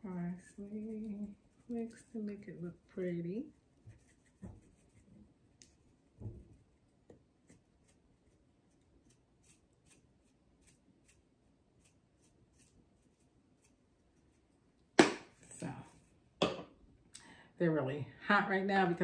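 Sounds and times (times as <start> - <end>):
thump: 6.2 - 6.6.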